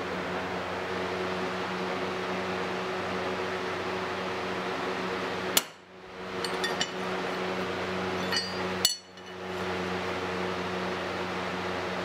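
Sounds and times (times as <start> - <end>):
machine hum: 5.9 - 9.9
hammer striking metal punch: 6.4 - 7.1, 8.2 - 9.5.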